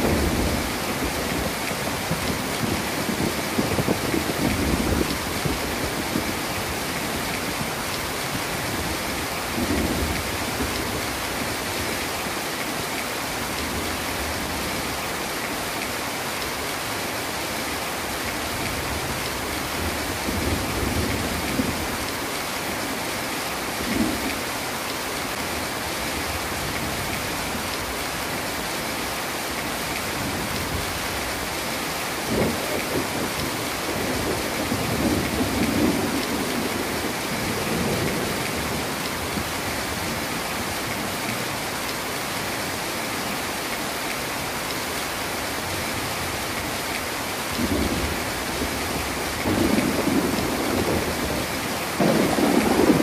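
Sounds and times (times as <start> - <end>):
thunder rumbles: 0.0 - 7.3, 47.5 - 53.0
heavy rain: 0.0 - 53.0.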